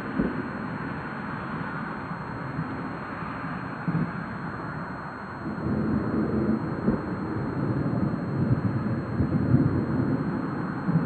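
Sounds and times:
storm wind buffeting microphone: 5.4s - 11.0s.

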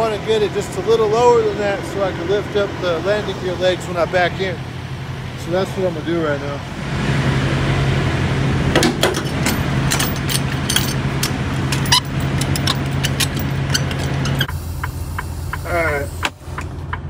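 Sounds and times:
low engine hum: 0.0s - 17.0s
metallic clicks and clanks of crank: 9.0s - 14.5s.

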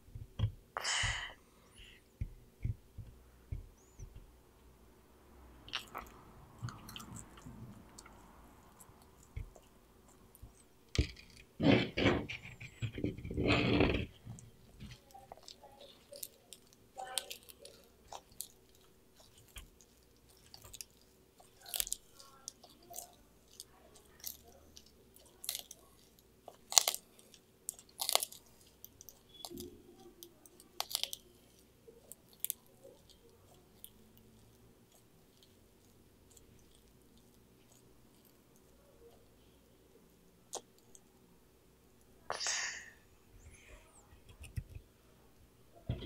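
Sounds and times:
tortoise chewing leaf: 12.4s - 39.6s.

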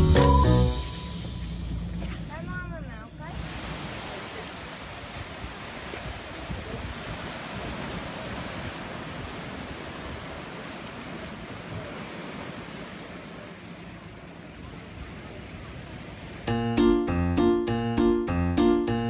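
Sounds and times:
waves washing against rocks: 3.3s - 16.4s
wind buffeting microphone: 4.9s - 12.8s.

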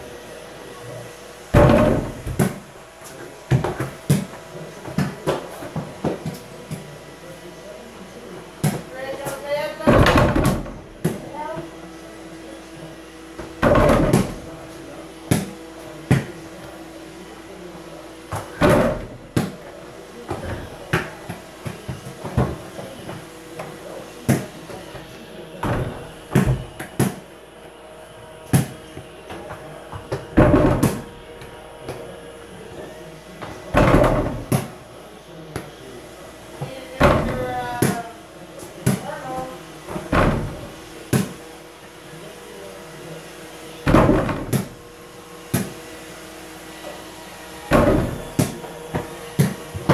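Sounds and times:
ball hitting hoop and rattling door: 1.6s - 2.6s, 9.9s - 11.2s, 13.5s - 14.4s, 18.3s - 19.6s, 25.6s - 27.2s, 30.0s - 31.1s, 33.7s - 34.7s, 37.0s - 38.0s, 39.9s - 41.3s, 43.9s - 44.8s, 47.7s - 48.6s.

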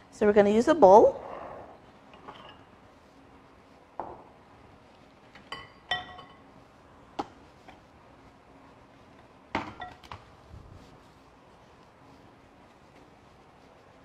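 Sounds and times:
glass bowls clinking under tongs: 5.6s - 6.4s.

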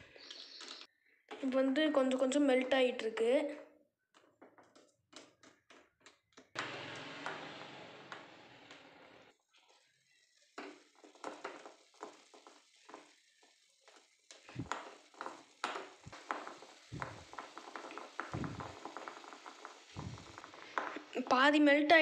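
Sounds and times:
low thumps: 16.9s - 17.3s, 18.3s - 18.8s, 20.0s - 20.4s.

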